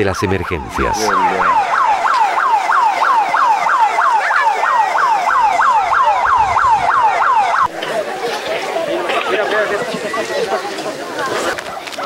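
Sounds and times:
alarm siren yelping: 0.0 - 7.7.

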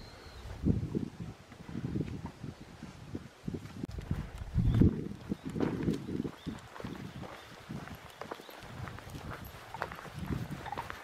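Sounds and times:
footsteps on dirt trail: 1.5 - 11.0
dog paws pacing: 3.9 - 11.0.

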